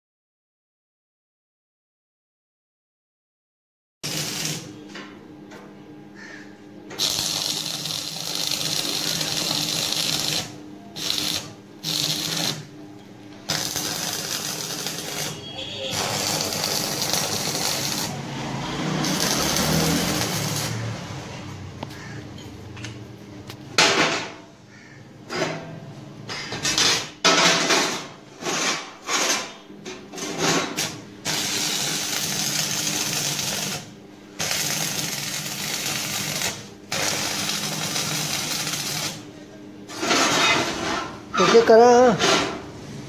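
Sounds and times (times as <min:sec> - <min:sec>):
welding arc crackling: 0:04.0 - 0:04.7, 0:07.0 - 0:12.7, 0:13.5 - 0:21.0, 0:30.8 - 0:39.2.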